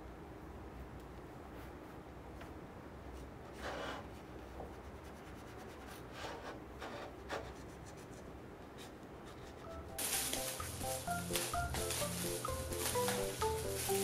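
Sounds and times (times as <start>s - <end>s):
paper towel rubbing on wood: 8.8s - 14.0s.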